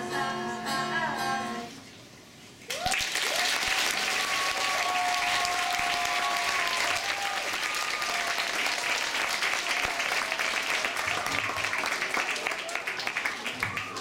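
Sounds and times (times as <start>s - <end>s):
audience clapping: 2.7s - 14.0s
high whoops: 2.7s - 14.0s.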